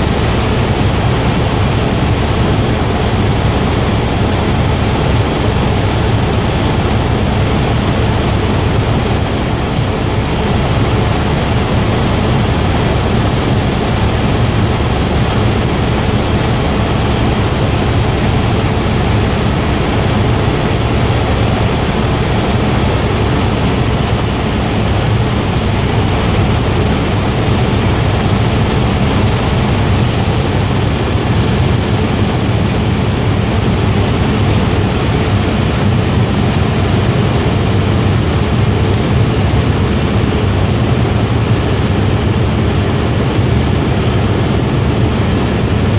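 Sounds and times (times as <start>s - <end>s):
helicopter engine and rotor drone: 0.0s - 45.9s.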